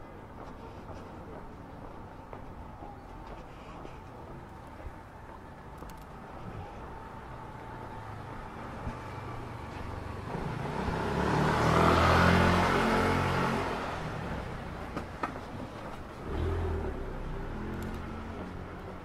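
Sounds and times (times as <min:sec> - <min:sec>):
vehicle driving past: 0:07.4 - 0:14.9, 0:16.1 - 0:19.0.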